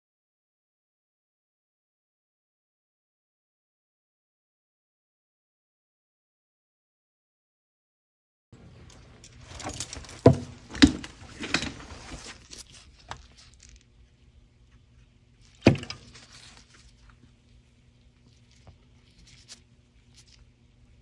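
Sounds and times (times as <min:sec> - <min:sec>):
objects rustling on tabletop: 0:08.7 - 0:13.9.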